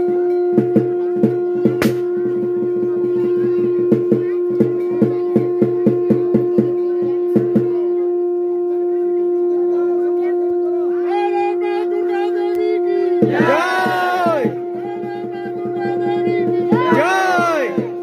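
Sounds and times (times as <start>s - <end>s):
conch shell blown: 0.0s - 18.0s
people's voices: 0.6s - 18.0s
sharp strikes: 13.1s - 18.0s.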